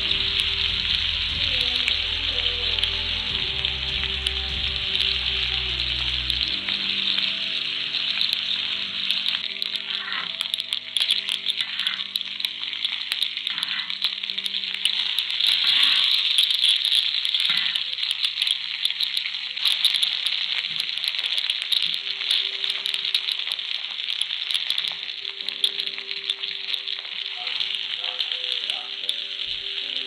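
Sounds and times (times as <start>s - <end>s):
steak sizzling in butter: 0.0s - 30.0s.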